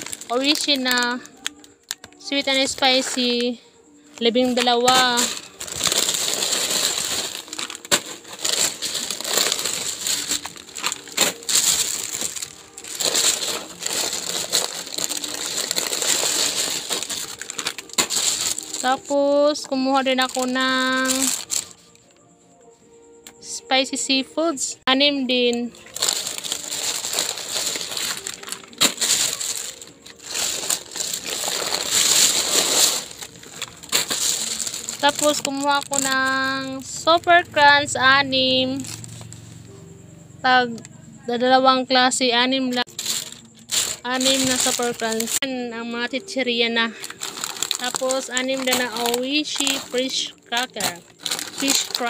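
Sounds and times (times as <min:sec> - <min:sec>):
plastic bag rustling: 0:00.0 - 0:01.3, 0:04.2 - 0:22.0, 0:25.8 - 0:36.8, 0:42.8 - 0:45.5, 0:46.9 - 0:52.0
foil packets crackling: 0:00.0 - 0:22.0, 0:25.7 - 0:37.2, 0:38.7 - 0:39.4, 0:42.8 - 0:45.5, 0:46.2 - 0:52.0.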